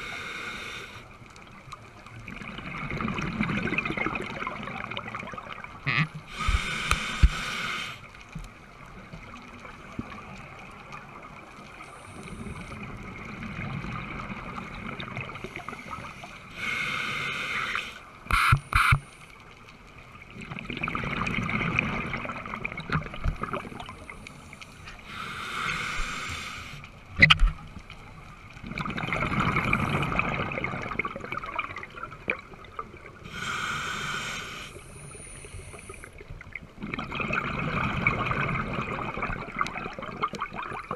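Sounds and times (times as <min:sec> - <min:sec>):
underwater breathing noise: 0:00.0 - 0:01.1, 0:05.9 - 0:08.1, 0:15.4 - 0:19.2, 0:23.8 - 0:26.9, 0:33.2 - 0:36.2.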